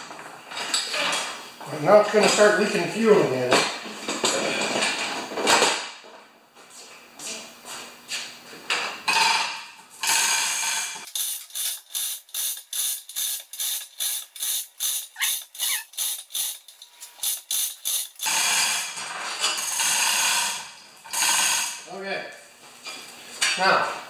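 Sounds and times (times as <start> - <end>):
chain hoist clicking: 11.1 - 18.4.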